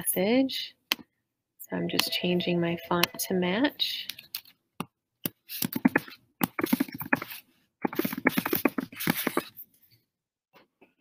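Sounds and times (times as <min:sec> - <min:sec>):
computer keyboard typing: 0:05.6 - 0:09.5.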